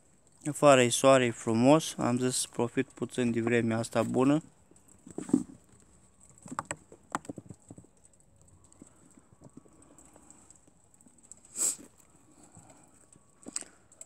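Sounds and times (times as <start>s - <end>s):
rabbit paws on plastic tub: 3.0s - 12.1s.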